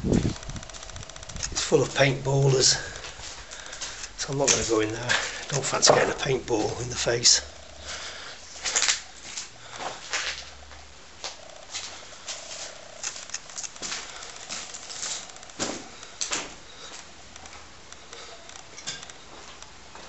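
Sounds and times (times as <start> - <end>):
footsteps crunching broken glass: 0.2 - 7.2, 8.5 - 17.1.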